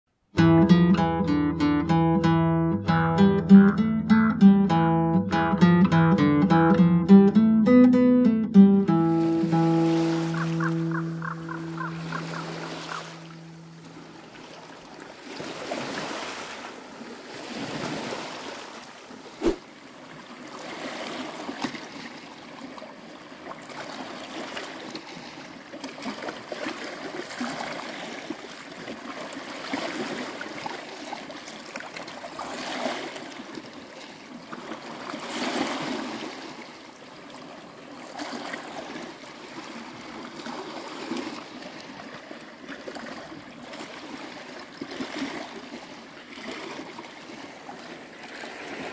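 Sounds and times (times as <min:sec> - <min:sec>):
sea waves lapping on rocks: 0:09.2 - 0:48.9
sharp knock: 0:19.4 - 0:19.6.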